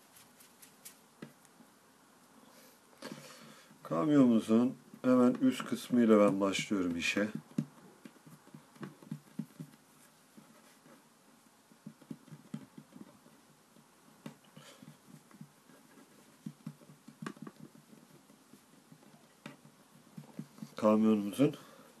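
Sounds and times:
hands patting play dough on table: 4.9 - 11.0, 11.8 - 21.0.

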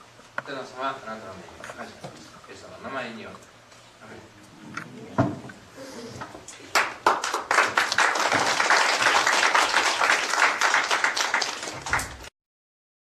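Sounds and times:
congregation applauding: 6.7 - 12.3.

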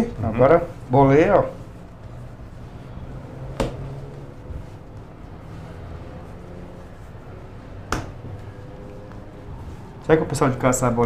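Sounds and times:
low machine hum: 0.0 - 11.0
sharp knocks: 3.5 - 3.9, 7.9 - 8.4.

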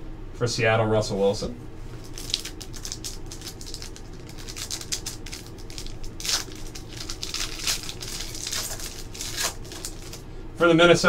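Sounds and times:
foil wrapper crinkling and tearing: 2.0 - 10.2.

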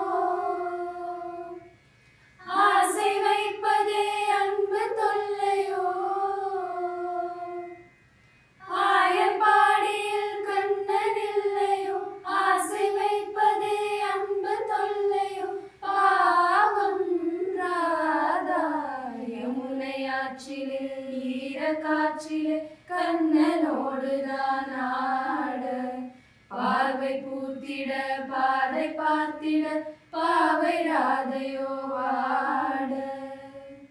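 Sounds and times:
women singing in unison: 0.0 - 1.8, 2.4 - 7.9, 8.6 - 33.9.

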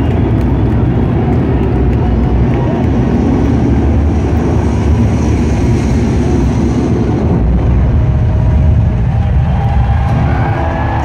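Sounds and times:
loud low droning rumble: 0.0 - 11.0.

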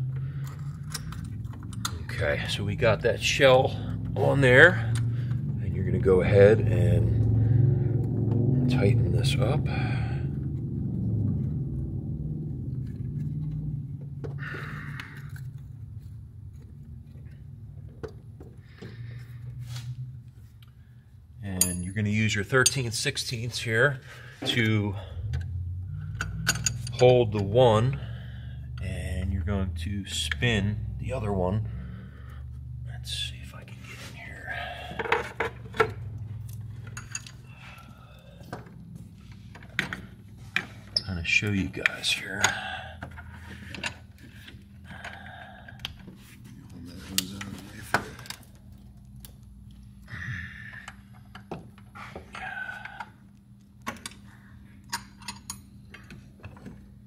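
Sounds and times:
steady low hum: 0.0 - 57.0
tools clicking and knocking: 54.8 - 56.8.

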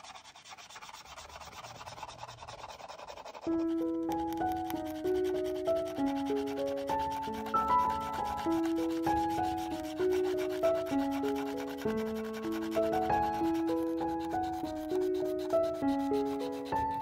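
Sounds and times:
marker tip rubbing on paper: 0.0 - 17.0
slow background music: 3.5 - 17.0.

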